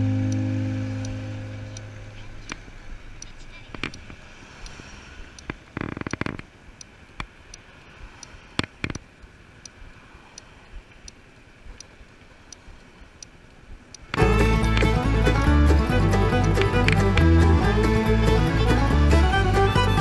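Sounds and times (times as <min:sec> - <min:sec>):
sharp clicks: 0:00.0 - 0:07.6, 0:08.2 - 0:09.8.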